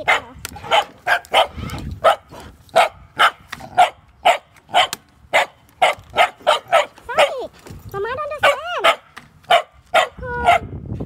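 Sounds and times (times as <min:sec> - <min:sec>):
dog barking: 0:00.0 - 0:07.4, 0:08.4 - 0:10.7.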